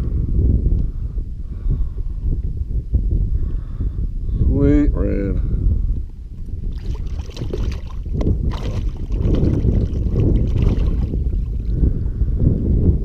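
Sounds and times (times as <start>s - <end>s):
wind rumbling on microphone: 0.0s - 13.0s
water splashing and dripping: 6.7s - 11.7s.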